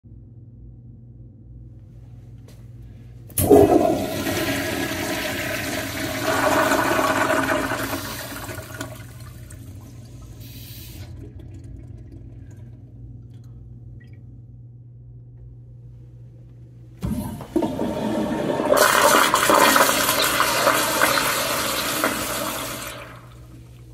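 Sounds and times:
toilet flushing rush of water: 3.4 - 13.1, 17.0 - 23.8.

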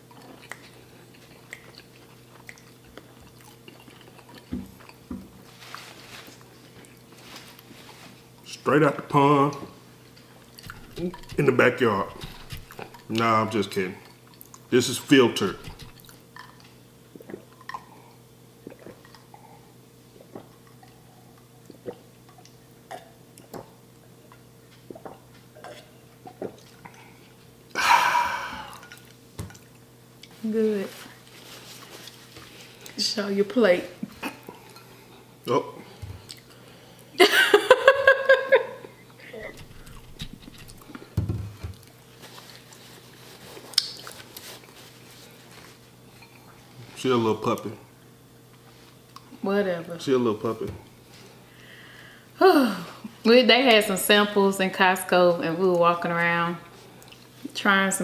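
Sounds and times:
paper napkin rustling: 5.4 - 8.3, 10.6 - 13.1, 15.0 - 16.0, 30.4 - 32.8, 42.1 - 46.0
man swallowing water: 10.6 - 13.1
breathy exhale: 27.8 - 28.9, 51.5 - 52.3.

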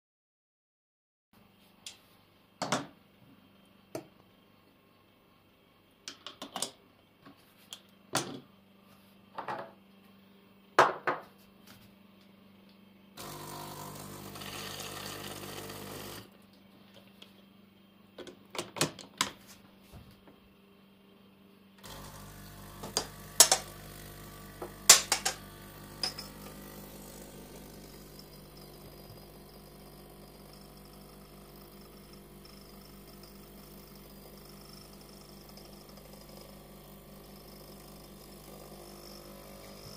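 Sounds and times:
espresso machine pump humming: 13.2 - 18.5, 20.4 - 39.9.

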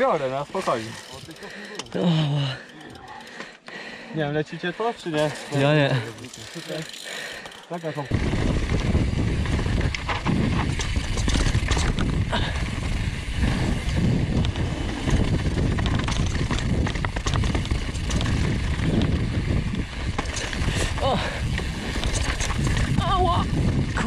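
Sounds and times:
bike rattling over boards and rocks: 0.0 - 3.3, 5.0 - 24.0
tyres crunching over dirt: 7.8 - 23.7
wind rumble on microphone: 8.1 - 24.0.

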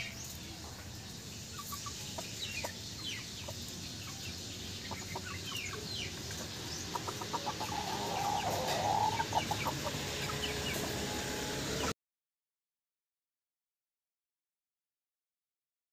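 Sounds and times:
chickens clucking: 0.0 - 11.9.

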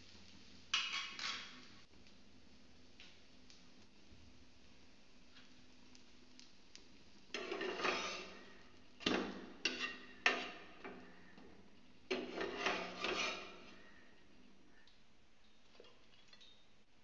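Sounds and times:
spatula scraping frying pan: 0.7 - 1.7, 7.3 - 14.2.

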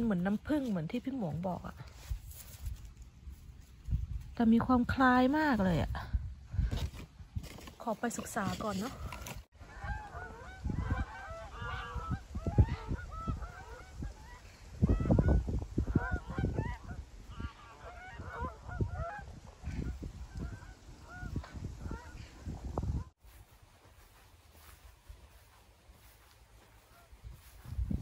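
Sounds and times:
wind on microphone: 1.8 - 7.7, 8.7 - 28.0
geese honking: 8.6 - 22.4, 24.1 - 27.8.

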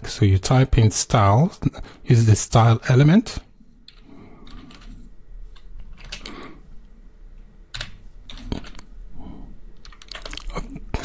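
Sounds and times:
keyboard keystrokes: 5.6 - 6.4, 7.7 - 8.9, 9.8 - 10.5.

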